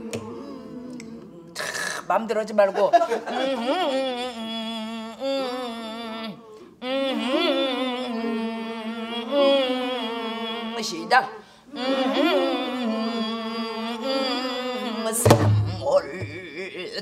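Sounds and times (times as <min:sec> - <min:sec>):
woman singing long held notes: 0:00.0 - 0:01.6.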